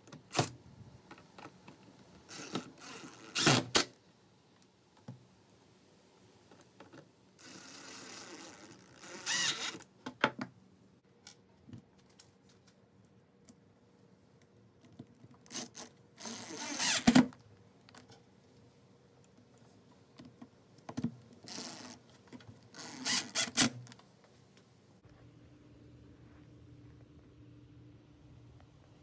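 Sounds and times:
drill driving screws into wood: 2.3 - 3.9, 7.4 - 9.8, 15.5 - 17.3, 22.8 - 23.8.

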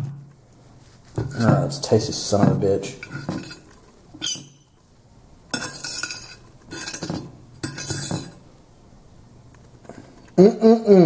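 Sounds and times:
cutlery scraping a ceramic plate: 3.0 - 4.8, 5.6 - 8.4.

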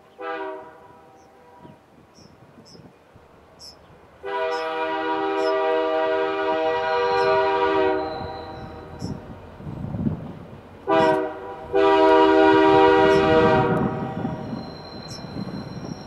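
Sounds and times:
locomotive air horn blasts: 0.2 - 1.8, 4.2 - 9.2, 10.8 - 15.2
train wheels rumbling on rails: 1.2 - 16.0.

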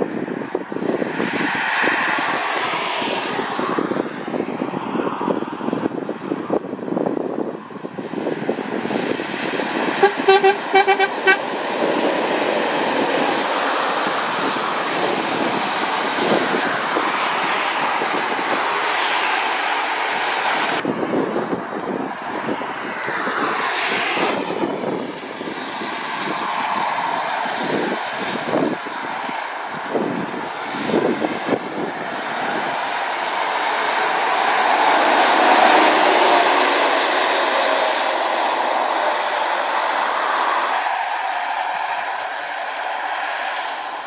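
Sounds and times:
vehicle engine noise: 0.0 - 44.0
tyres hissing on wet road: 8.8 - 20.8, 32.1 - 44.0.

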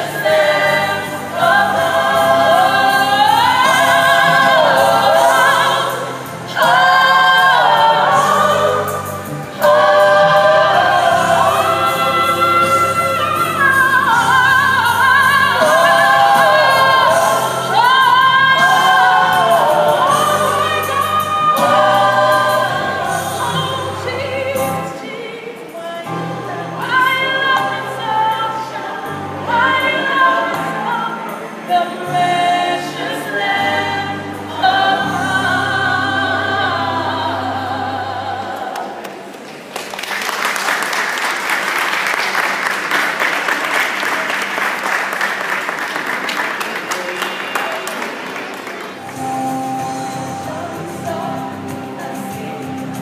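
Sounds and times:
a cappella group singing in harmony: 0.0 - 39.3, 49.1 - 53.0
audience applause: 38.8 - 49.2.

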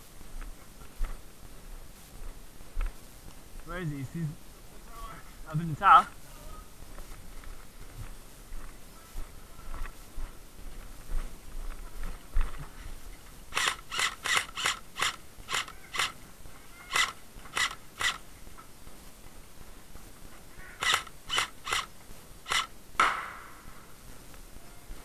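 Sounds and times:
airsoft rifle shots: 13.5 - 16.2, 16.9 - 18.2, 20.8 - 23.9.

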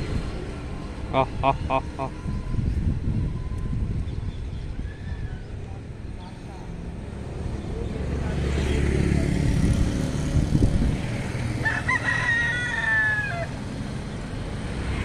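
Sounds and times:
rooster crowing: 11.6 - 13.6.

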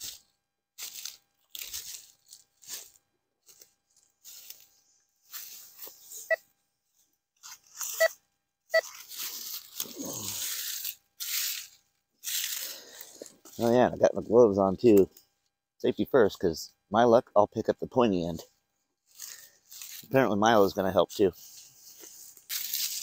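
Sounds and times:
footsteps crunching through dry leaves: 0.0 - 6.3, 8.8 - 13.9, 19.0 - 23.0
twigs crackling: 0.8 - 6.2, 8.8 - 13.8, 21.9 - 23.0.

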